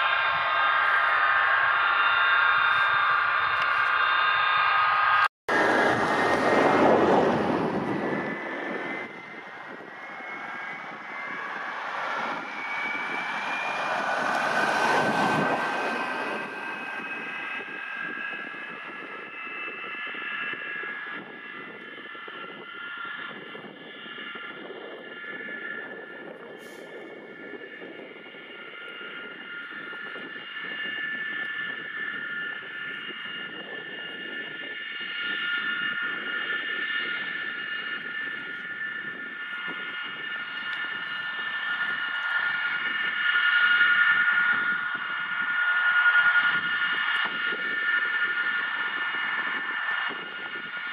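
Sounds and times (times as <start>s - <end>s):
jet engines whining and roaring: 0.0s - 50.9s.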